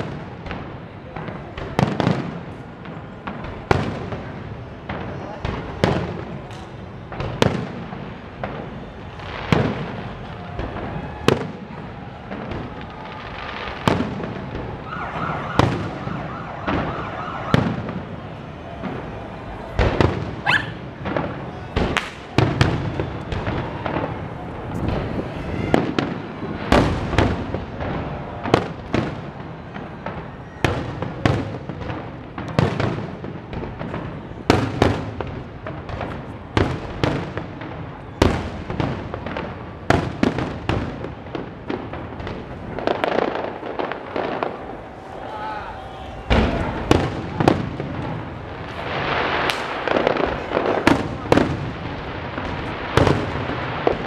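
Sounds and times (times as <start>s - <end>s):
fireworks booming and banging: 0.0s - 54.0s.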